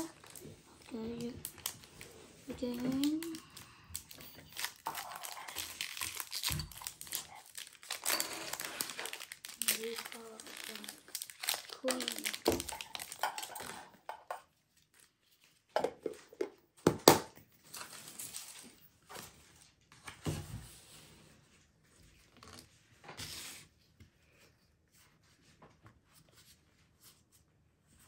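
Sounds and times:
foil wrapper tearing and crinkling: 0:00.0 - 0:13.9.

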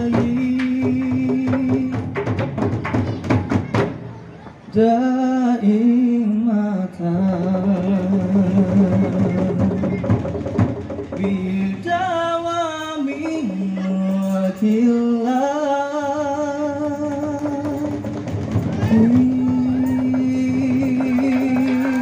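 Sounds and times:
man singing into microphone: 0:00.0 - 0:02.2, 0:04.7 - 0:10.0, 0:11.2 - 0:18.1, 0:18.8 - 0:22.0
large drums beaten fast: 0:00.0 - 0:04.1, 0:07.6 - 0:13.4, 0:16.7 - 0:22.0.

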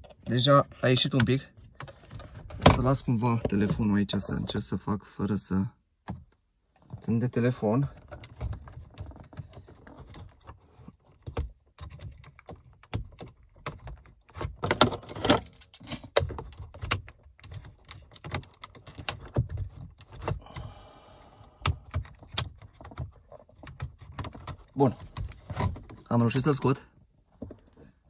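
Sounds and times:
hard plastic clicks and rattles: 0:16.1 - 0:20.7, 0:21.5 - 0:26.1.

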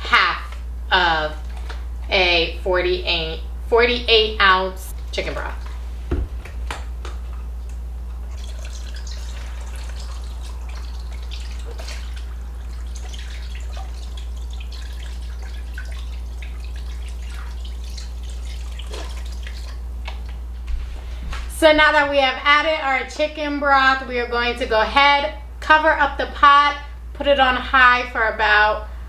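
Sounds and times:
steady low hum: 0:00.0 - 0:29.0
broth pouring and splashing: 0:08.2 - 0:20.3.

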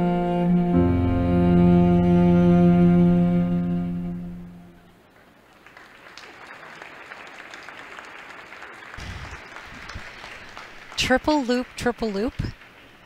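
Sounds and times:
held music note: 0:00.0 - 0:05.0
small crowd applause: 0:05.1 - 0:13.0.

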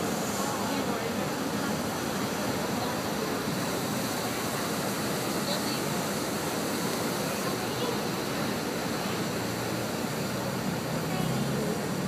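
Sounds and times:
propeller wash churning water: 0:00.0 - 0:12.0.

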